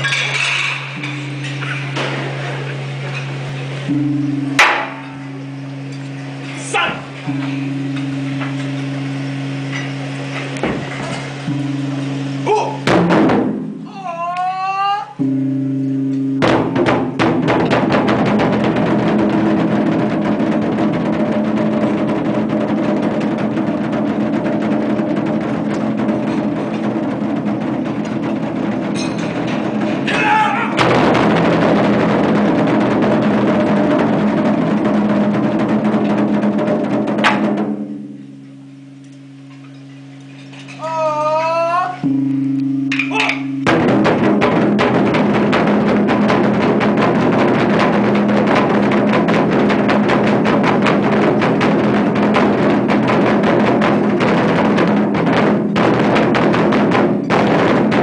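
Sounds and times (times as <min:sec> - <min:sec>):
barrel drums struck with sticks: 0:00.0 - 0:13.9, 0:15.2 - 0:40.3, 0:42.0 - 0:58.0
low hum: 0:00.0 - 0:14.5, 0:15.1 - 0:57.4.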